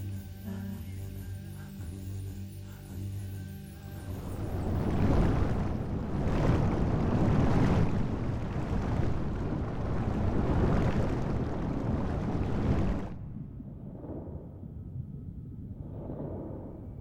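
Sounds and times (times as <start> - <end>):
rushing water: 4.1 - 13.3.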